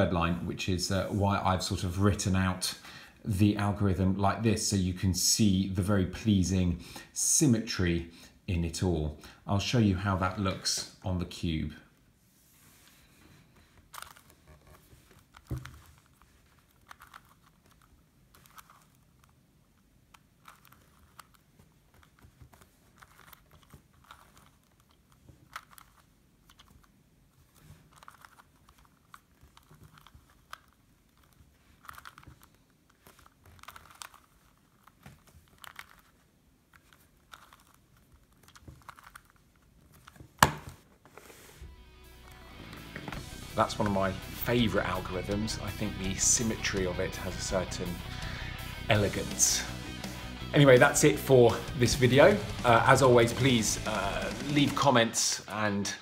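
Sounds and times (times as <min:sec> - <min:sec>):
puzzle cube turning clicks: 0:13.8 - 0:40.9.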